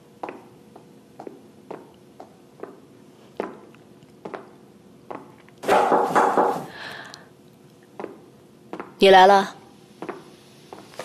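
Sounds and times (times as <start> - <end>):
footsteps on hard floor: 10.0 - 11.0.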